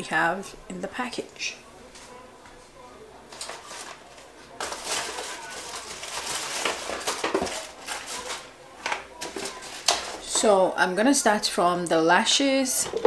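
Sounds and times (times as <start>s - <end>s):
packaging rustling and crinkling: 3.3s - 8.5s.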